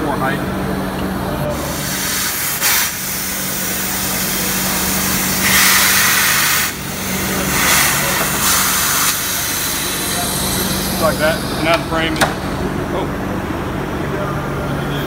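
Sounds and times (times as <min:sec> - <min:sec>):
steady shop hum: 0:00.0 - 0:15.0
compressed air hissing: 0:01.5 - 0:12.7.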